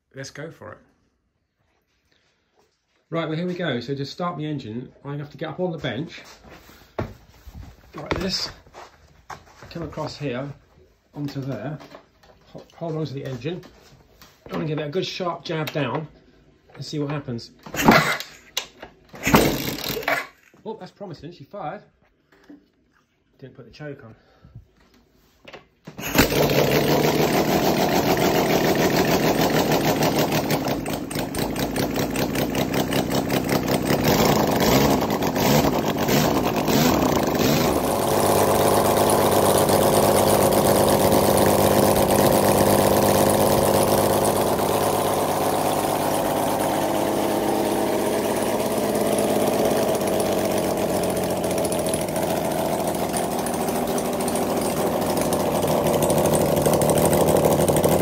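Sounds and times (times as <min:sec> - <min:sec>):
six-cylinder engine idling: 0:26.2 - 0:58.0.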